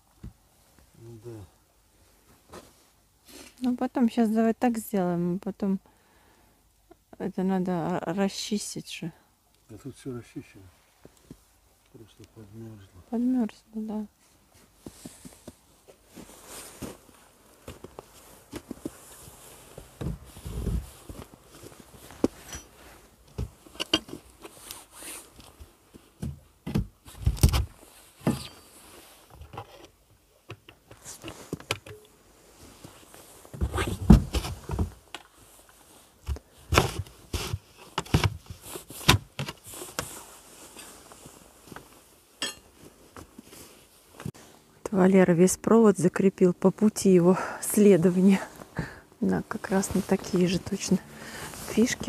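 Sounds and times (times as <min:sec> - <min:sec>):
knocks and scrapes: 0:32.9 - 0:35.0.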